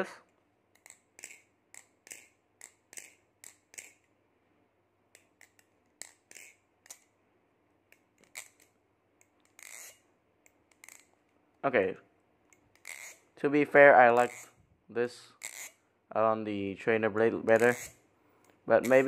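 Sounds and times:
butterfly knife clacking and rattling: 0.7 - 4.1, 5.1 - 7.1, 7.9 - 11.2, 12.5 - 13.2.

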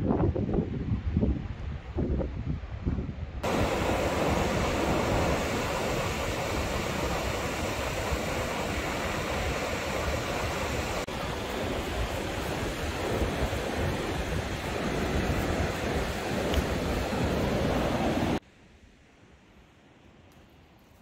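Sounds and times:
wind on microphone: 0.0 - 18.4
ocean surf breaking on beach: 3.4 - 18.4.

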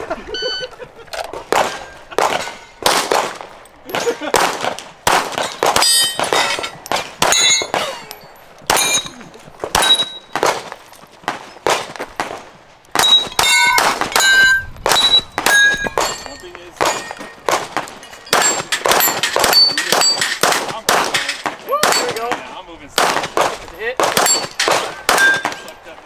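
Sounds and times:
rapid gunshots: 1.5 - 7.4, 16.8 - 22.4, 23.0 - 25.6
steel target plate ringing: 5.5 - 9.2, 9.8 - 10.4, 13.0 - 20.4, 21.2 - 22.3, 24.2 - 25.8.

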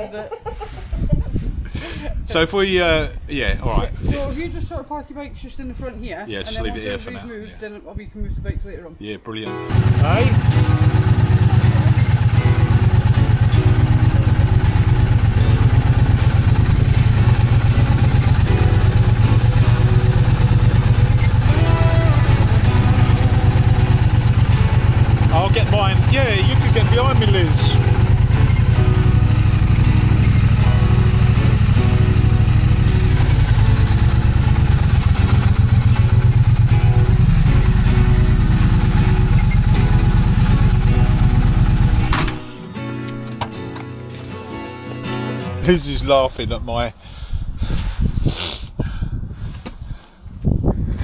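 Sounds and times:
motorcycle engine running: 9.7 - 42.5.

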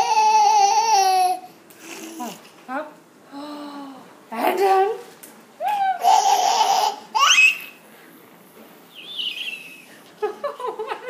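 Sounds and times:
girl giggling: 9.4 - 11.0.

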